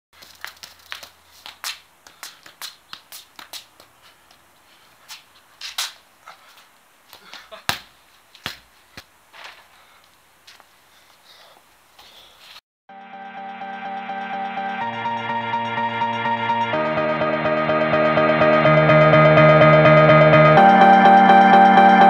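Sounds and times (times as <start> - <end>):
soccer ball tapped with feet: 0.2 - 4.4, 7.1 - 9.1
shoes scuffing on concrete: 0.2 - 10.7.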